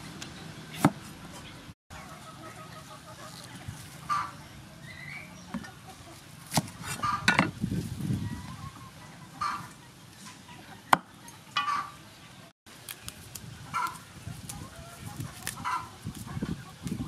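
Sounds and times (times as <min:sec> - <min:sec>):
chickens clucking: 0:00.4 - 0:12.5, 0:13.6 - 0:17.0
herb stems rustling: 0:12.7 - 0:17.0.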